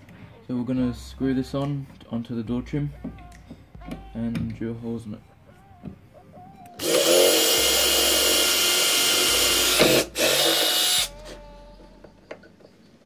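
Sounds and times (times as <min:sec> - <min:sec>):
cordless drill drilling plastic: 0:06.8 - 0:11.1.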